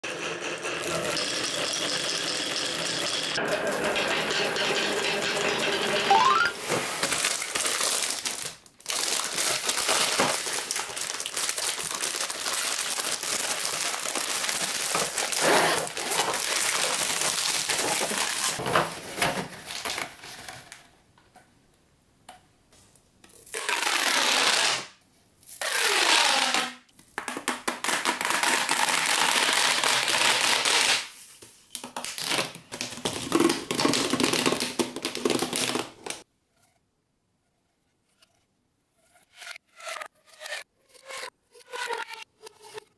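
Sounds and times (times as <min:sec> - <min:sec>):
plastic packaging crinkling: 0:06.6 - 0:18.6
plastic tubes rasping: 0:09.6 - 0:18.6.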